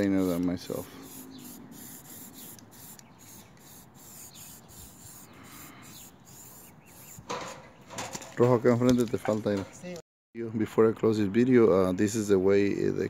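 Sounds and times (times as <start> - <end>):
paintbrush scratching on metal: 0.0 - 7.4.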